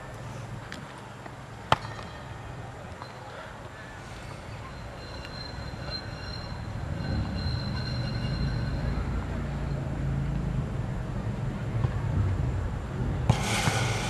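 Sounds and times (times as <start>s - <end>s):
high wheel squeal: 4.0s - 9.9s
tram wheels rumbling on rails: 4.2s - 14.0s.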